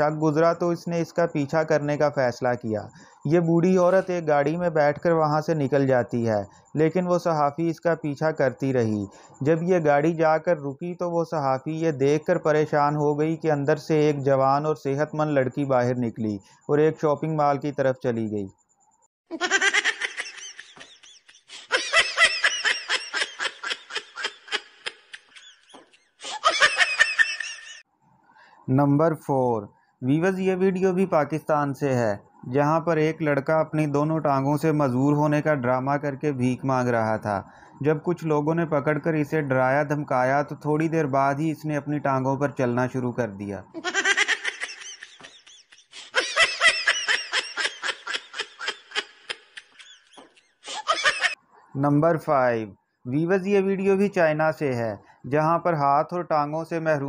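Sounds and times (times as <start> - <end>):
high-pitched laughter: 19.3 - 27.8, 43.8 - 51.4.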